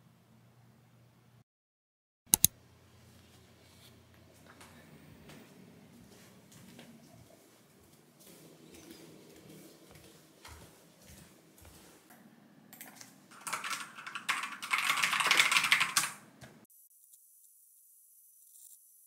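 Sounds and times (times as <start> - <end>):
fast typing on keyboard: 13.3 - 16.3.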